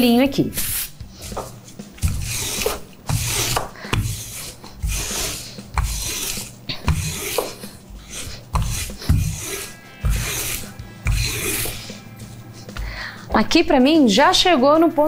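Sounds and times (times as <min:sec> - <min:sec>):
rolling pin over dough: 0:00.6 - 0:12.8.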